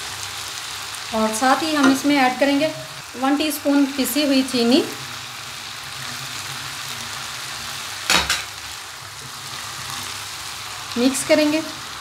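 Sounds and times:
food sizzling in frying pan: 0.0 - 12.0
spatula stirring in pan: 3.7 - 12.0.

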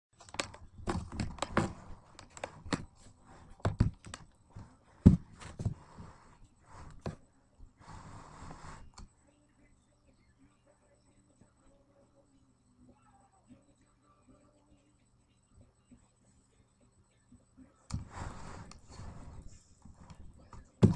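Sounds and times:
thumps and knocks: 0.2 - 6.0, 20.0 - 20.9.

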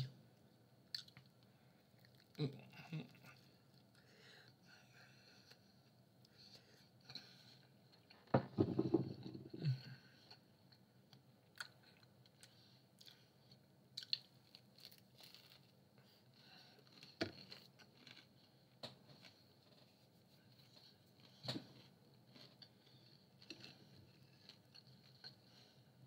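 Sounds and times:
person biting and chewing pizza: 13.9 - 25.6.

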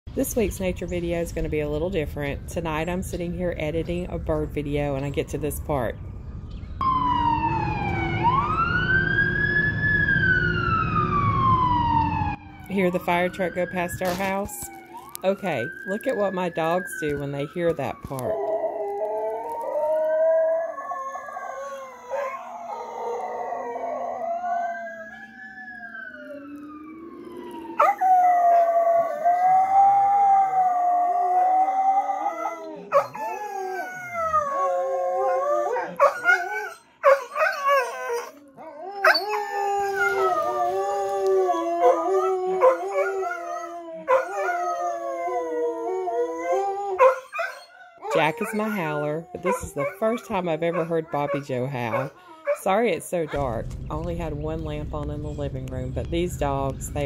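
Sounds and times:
fire truck siren wailing: 6.8 - 52.6
dogs howling: 16.0 - 52.8.

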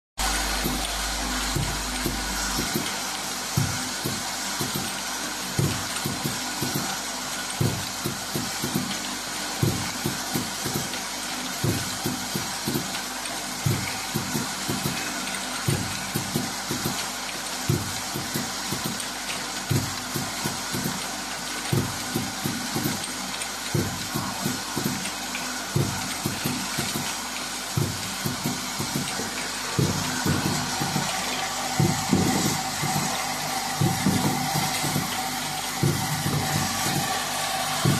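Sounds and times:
filling machine hiss and whir: 0.2 - 37.9
machine knocks and clacks: 0.2 - 37.9.

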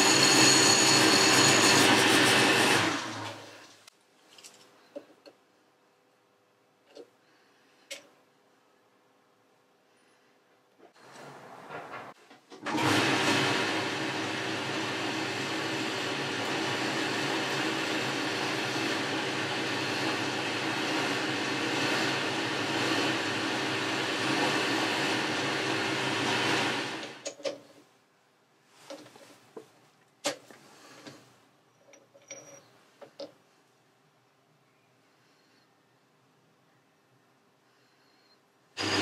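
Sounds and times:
metal lathe humming: 12.8 - 27.2, 38.8 - 39.0.

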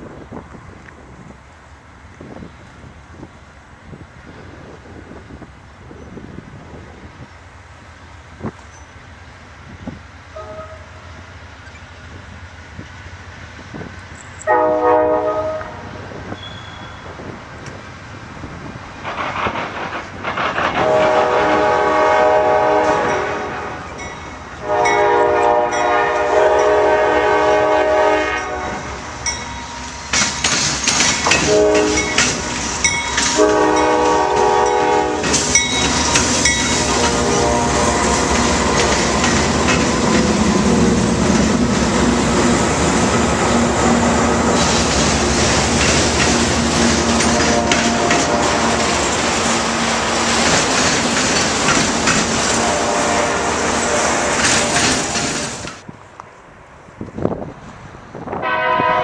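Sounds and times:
locomotive horn blasts: 10.3 - 11.2, 14.4 - 17.1, 20.8 - 24.0, 24.6 - 29.0, 31.2 - 32.6, 33.2 - 39.3, 47.0 - 49.1, 52.5 - 54.9, 58.4 - 59.0
train wheels clicking over rail joints: 15.6 - 26.8, 28.8 - 55.9.

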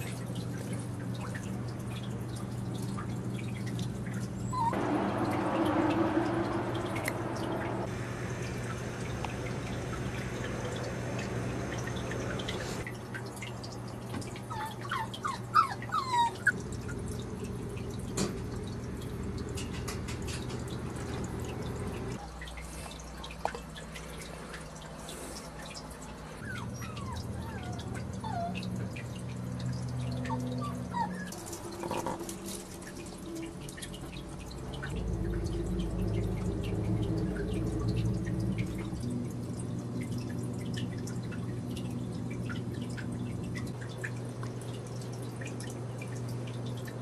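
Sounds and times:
low room hum: 0.0 - 47.0
puppies squeaking and whimpering: 4.3 - 4.8, 14.5 - 16.6, 26.4 - 28.7, 30.2 - 32.2.

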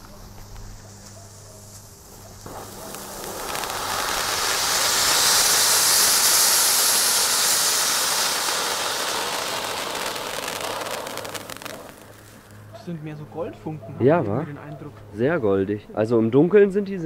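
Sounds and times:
firework fountain hissing: 0.0 - 12.7.

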